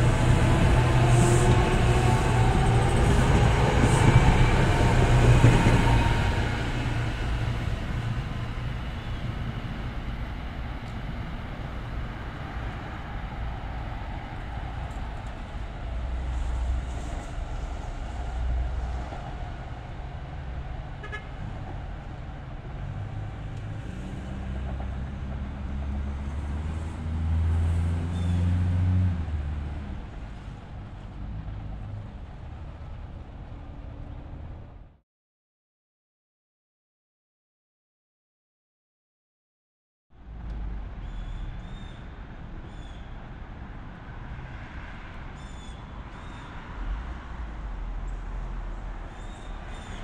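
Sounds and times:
train rumbling past: 0.0s - 35.0s, 40.2s - 50.0s.

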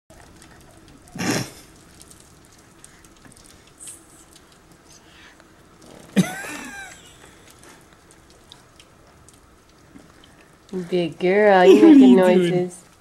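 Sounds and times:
baby blowing a raspberry: 1.1s - 1.7s.

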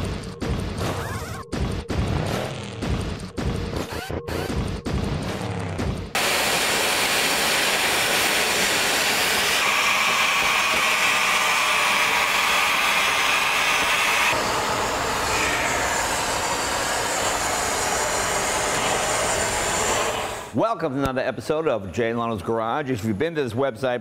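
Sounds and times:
steam hissing from a valve: 6.2s - 20.6s.

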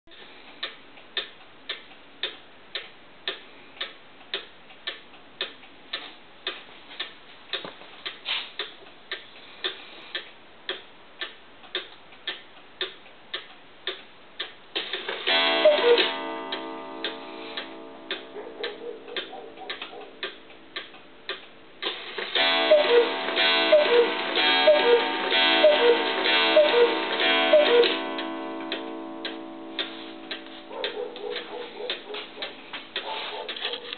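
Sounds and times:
clock ticking: 0.1s - 33.9s
clock chime melody: 15.3s - 19.6s, 22.4s - 32.2s.

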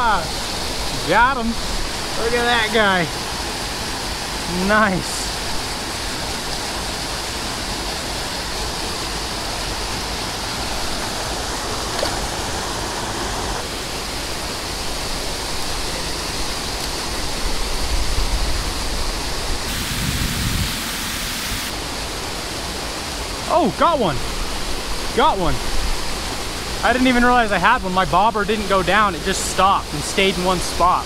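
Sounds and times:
stream water pouring over waterfall: 0.0s - 31.0s.

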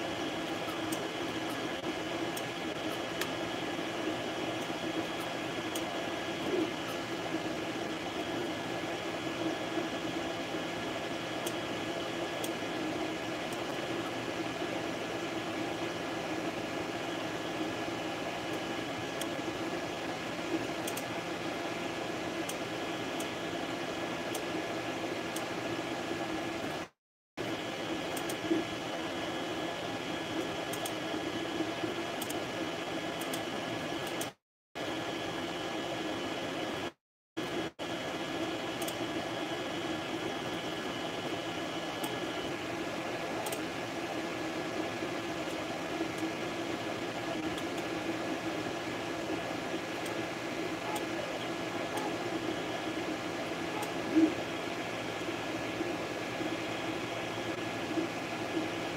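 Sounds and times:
fan whirring: 0.0s - 34.2s, 34.8s - 58.9s
faint motor whine: 0.0s - 58.9s.

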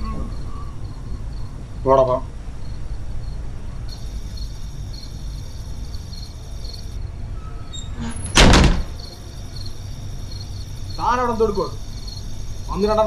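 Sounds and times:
crickets chirping: 0.0s - 13.0s
banging on wooden door: 8.3s - 9.1s.

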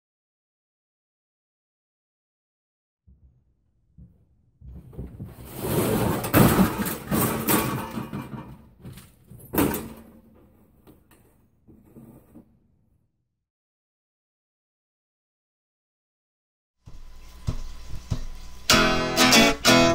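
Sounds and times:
sheet metal banging and rattling: 4.7s - 11.1s.

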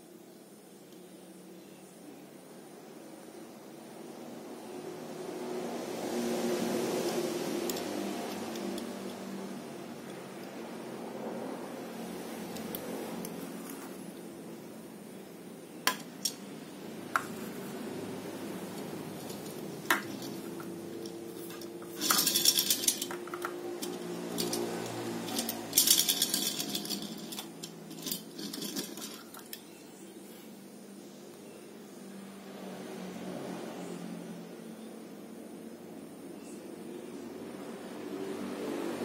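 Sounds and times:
toy car wheels rattling: 7.1s - 9.4s, 18.8s - 29.6s
toy car clicking on tabletop: 19.2s - 29.6s.

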